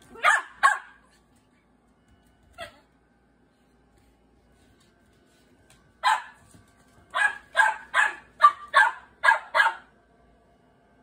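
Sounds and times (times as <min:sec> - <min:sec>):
dog barking: 0:00.2 - 0:01.0, 0:06.0 - 0:06.4, 0:07.1 - 0:09.9.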